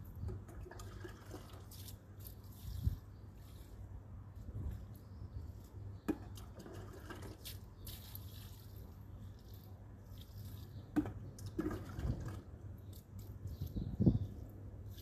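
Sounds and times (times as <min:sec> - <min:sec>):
water pouring onto soil: 0:00.5 - 0:03.6, 0:06.3 - 0:12.5.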